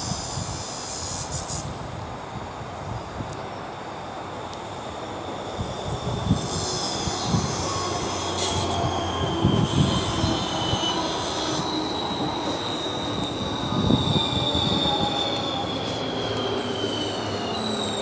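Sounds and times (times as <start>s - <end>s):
low train rumble with thumps: 0.0s - 18.0s
train wheels squealing on rails: 0.0s - 18.0s.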